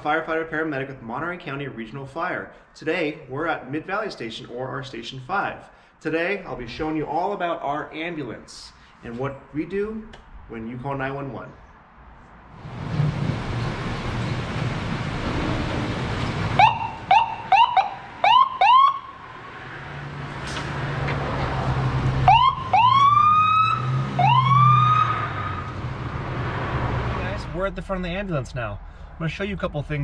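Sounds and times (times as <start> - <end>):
ambulance engine running: 12.6 - 19.4, 20.1 - 26.2
electronic siren chirps and whoops: 16.6 - 19.2, 22.3 - 25.7.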